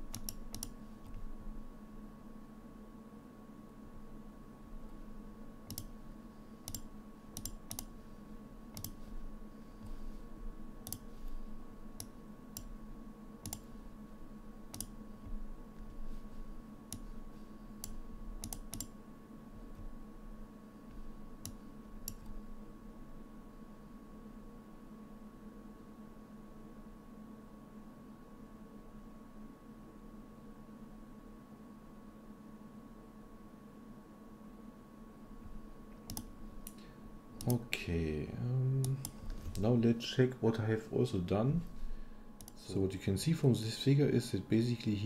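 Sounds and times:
computer mouse clicking: 0:00.0 - 0:01.2, 0:05.6 - 0:06.0, 0:06.6 - 0:07.9, 0:08.7 - 0:09.1, 0:10.8 - 0:11.4, 0:12.0 - 0:12.8, 0:13.4 - 0:13.7, 0:14.7 - 0:16.0, 0:16.9 - 0:17.1, 0:17.8 - 0:19.0, 0:20.9 - 0:22.4, 0:35.4 - 0:37.6, 0:38.8 - 0:39.7, 0:42.4 - 0:42.6
faint electrical hum: 0:00.0 - 0:45.0.

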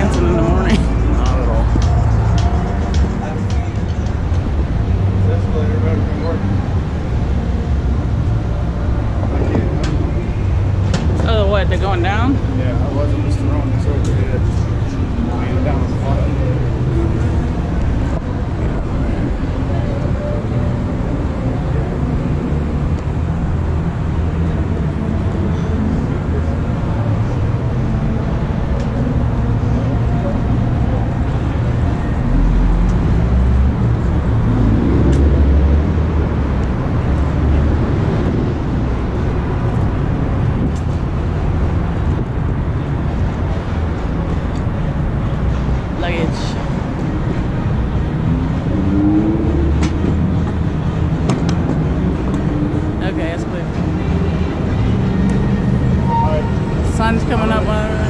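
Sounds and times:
street traffic noise: 0:00.0 - 0:58.0.

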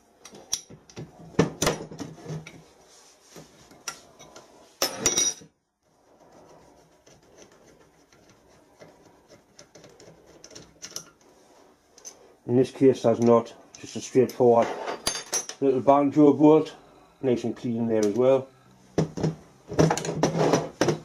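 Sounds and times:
metal tools clinking and scraping: 0:03.7 - 0:05.5, 0:10.4 - 0:11.2, 0:11.9 - 0:12.4, 0:13.2 - 0:15.6.

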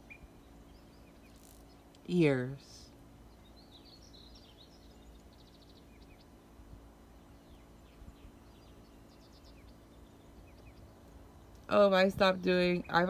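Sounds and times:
low background rumble: 0:00.0 - 0:13.0
small birds chirping: 0:00.0 - 0:13.0.

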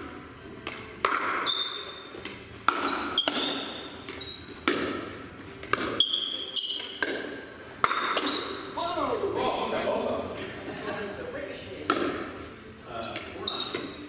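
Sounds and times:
pickleball hollow knocks: 0:00.6 - 0:01.5, 0:02.2 - 0:06.0, 0:11.8 - 0:12.3
short high squeaks: 0:03.2 - 0:04.5, 0:06.0 - 0:07.0, 0:13.0 - 0:14.0.

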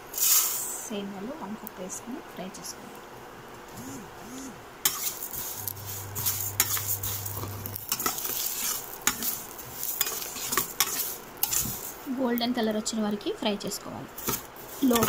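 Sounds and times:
light sizzle: 0:00.0 - 0:03.8, 0:04.8 - 0:15.0
spoon clinking and scraping pan: 0:04.9 - 0:12.0, 0:14.2 - 0:15.0.

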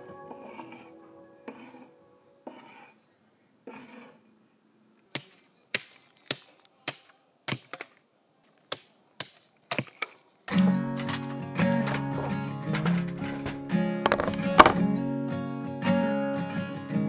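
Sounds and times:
faint music: 0:00.0 - 0:08.6, 0:10.4 - 0:17.0
sharp knocks: 0:11.8 - 0:14.9.

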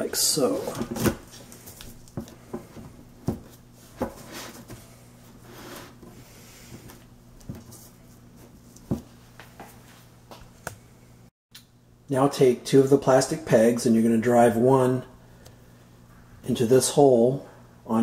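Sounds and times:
faint steady hum: 0:00.0 - 0:18.0
soft sliding rub: 0:04.1 - 0:07.0.

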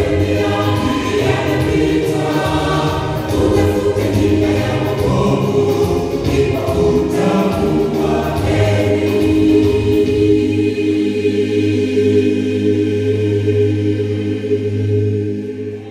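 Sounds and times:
gospel choir singing in harmony: 0:00.0 - 0:15.9.

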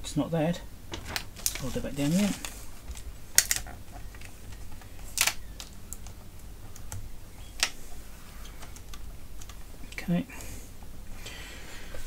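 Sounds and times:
hands handling cable clicks: 0:02.3 - 0:07.8, 0:08.5 - 0:09.6.

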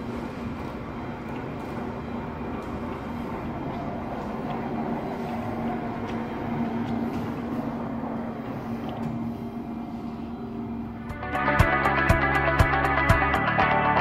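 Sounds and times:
steady mechanical hum: 0:00.0 - 0:13.8
music with drum beat: 0:11.1 - 0:13.4.

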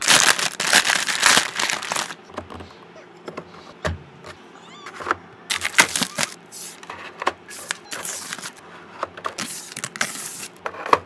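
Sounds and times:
plastic film crinkling: 0:00.0 - 0:02.2, 0:05.5 - 0:06.8, 0:07.5 - 0:08.6, 0:09.3 - 0:10.5.

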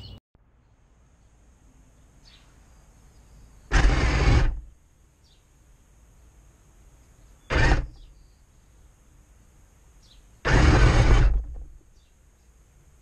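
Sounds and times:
model tank drive noise: 0:03.7 - 0:04.7, 0:07.5 - 0:08.1, 0:10.4 - 0:11.8.

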